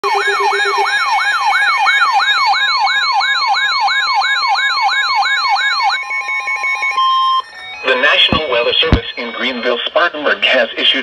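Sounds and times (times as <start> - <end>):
high beeping tone: 0.0 - 1.1, 6.9 - 10.6
weather radio siren warbling: 0.0 - 10.7
low beeps: 6.9 - 10.3.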